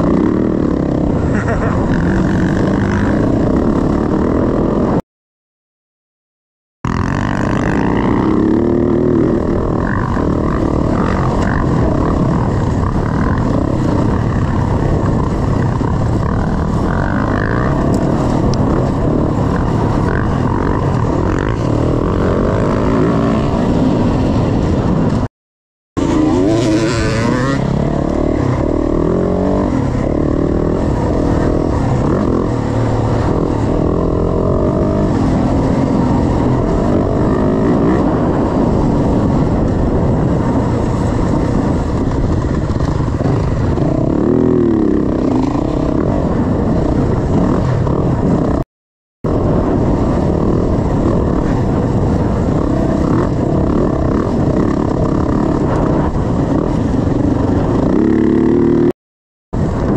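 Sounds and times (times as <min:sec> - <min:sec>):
dirt bike engine revving: 0:00.0 - 0:05.0, 0:06.9 - 0:25.3, 0:26.0 - 0:48.6, 0:49.3 - 0:58.9.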